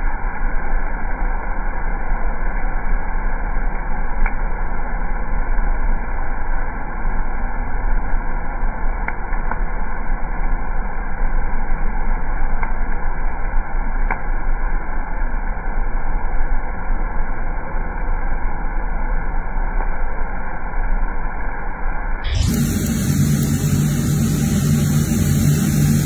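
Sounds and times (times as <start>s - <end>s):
low machine hum: 0.0s - 26.0s
coffee beans rustling in roaster: 22.3s - 26.0s.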